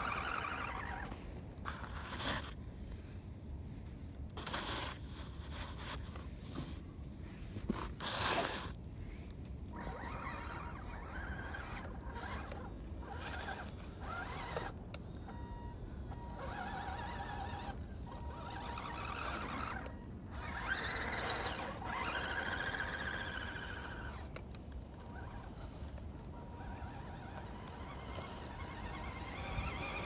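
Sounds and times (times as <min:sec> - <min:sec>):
electric motor and gearbox whining: 0:00.0 - 0:02.6, 0:09.7 - 0:30.0.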